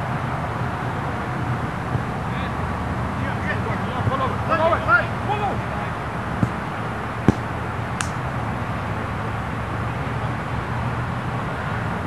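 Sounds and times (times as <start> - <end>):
sharp tap: 6.4 - 6.6, 7.3 - 8.2.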